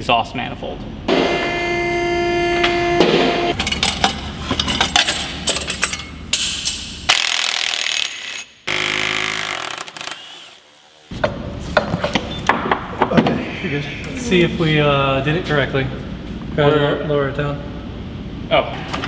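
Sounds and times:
tools clanking against metal: 3.5 - 6.8.

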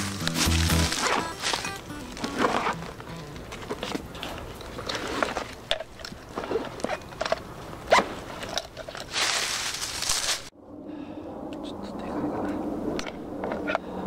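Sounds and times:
crunching and rustling handling noise: 0.0 - 10.5
hissing rustle: 8.0 - 10.5.

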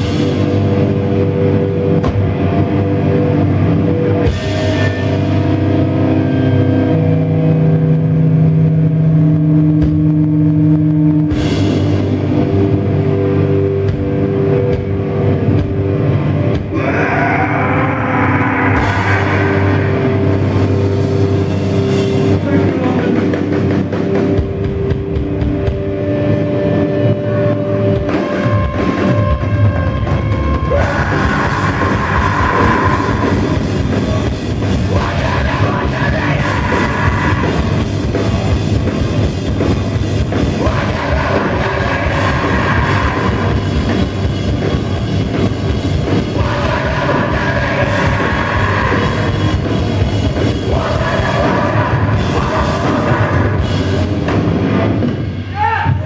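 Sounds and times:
heavy rock band playing: 0.0 - 56.0.

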